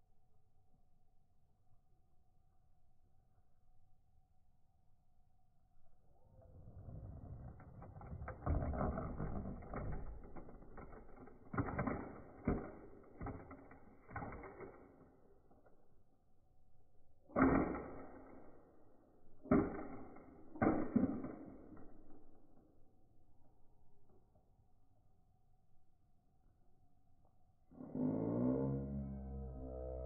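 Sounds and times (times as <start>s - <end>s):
toy truck rattling on concrete: 6.8s - 15.0s
toy truck crashing knocks: 8.2s - 14.9s.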